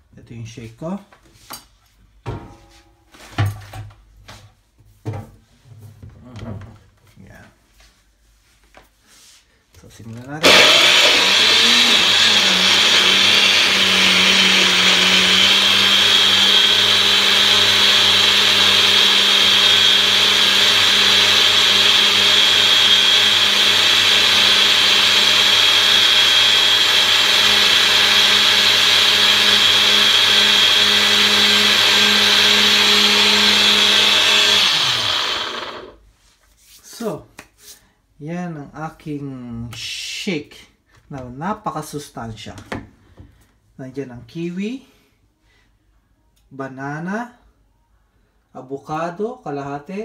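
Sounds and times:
blender motor running: 10.4s - 36.0s.

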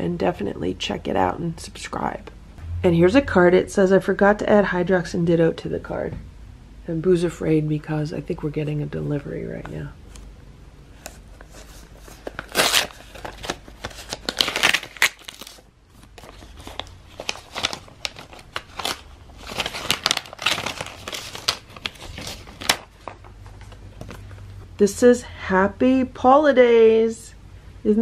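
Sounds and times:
envelope being torn open: 11.4s - 23.2s.

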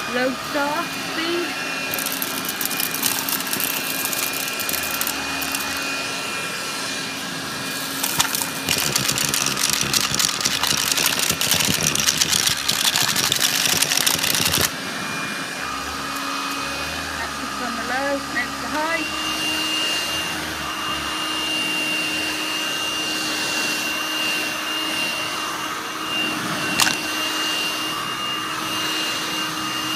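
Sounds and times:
handheld vacuum motor whine: 0.0s - 29.9s
debris rattling up vacuum nozzle: 1.8s - 6.0s, 7.7s - 14.7s.

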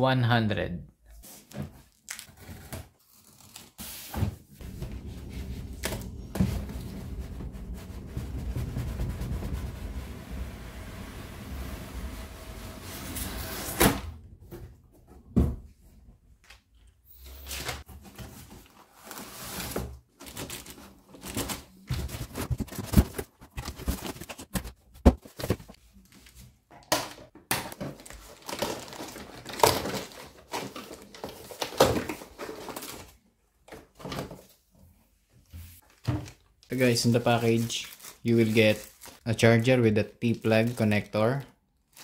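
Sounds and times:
plastic wrap rustling: 18.0s - 26.4s, 27.6s - 33.2s, 35.8s - 41.2s, 41.8s - 42.0s.

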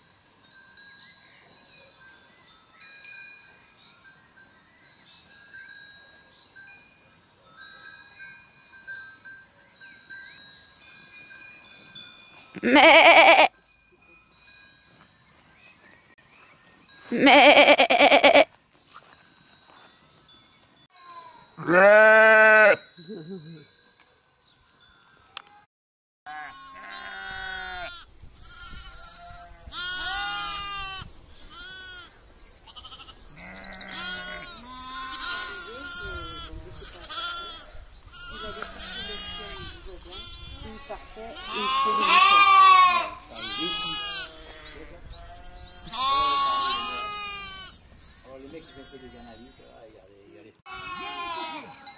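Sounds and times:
sheep bleating: 12.6s - 13.5s, 17.1s - 18.5s, 21.6s - 22.8s, 26.3s - 32.1s, 32.7s - 47.8s, 50.7s - 51.8s.

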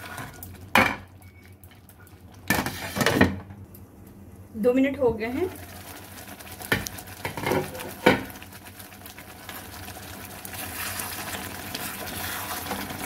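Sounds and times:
gravy sizzling in pan: 5.4s - 13.0s.

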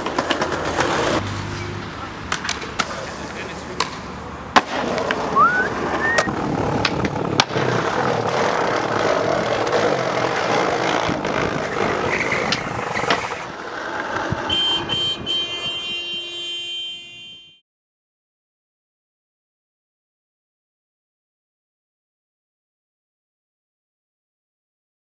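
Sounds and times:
skateboard clacks: 0.0s - 1.2s, 2.3s - 14.5s
skateboard wheels rolling on pavement: 0.0s - 15.8s.

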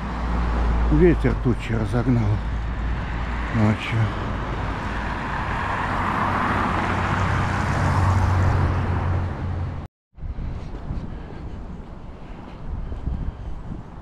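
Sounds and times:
outdoor noise: 0.0s - 14.0s
vehicle passing close by: 2.1s - 9.9s.

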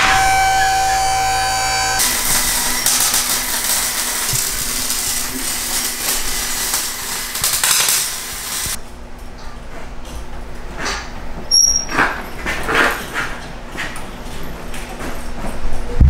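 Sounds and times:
arc welder crackling and hissing: 0.0s - 8.8s.

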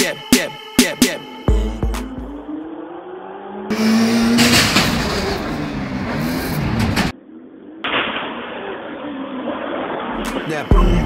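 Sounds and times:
hip hop music: 0.0s - 2.7s, 10.1s - 11.0s
buggy engine revving: 3.6s - 7.1s.

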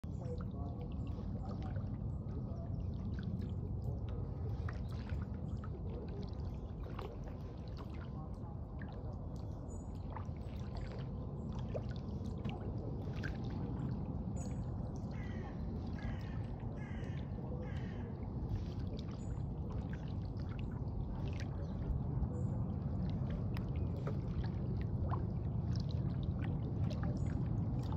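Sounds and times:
steady low rumble: 0.0s - 27.9s
water trickling and dripping: 0.0s - 27.9s.

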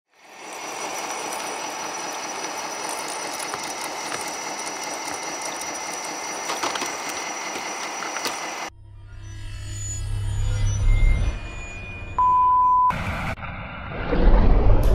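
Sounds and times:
tracks grinding over ice: 0.1s - 8.7s
electric motor whine: 0.1s - 11.1s.

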